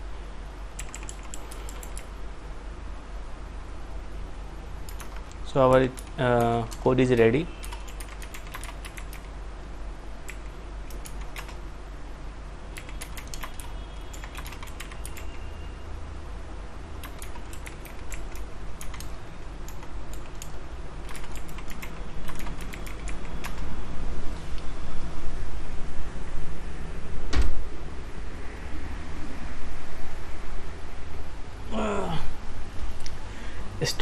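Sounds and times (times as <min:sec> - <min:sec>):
steady low hum: 0:00.0 - 0:34.0
computer keyboard typing: 0:00.8 - 0:02.1, 0:04.8 - 0:09.4, 0:10.2 - 0:11.6, 0:12.7 - 0:15.5, 0:17.0 - 0:23.7.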